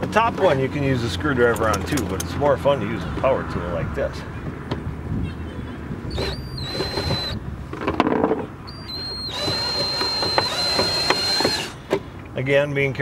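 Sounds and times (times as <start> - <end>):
power drill motor whine: 6.1 - 7.4, 8.7 - 11.8.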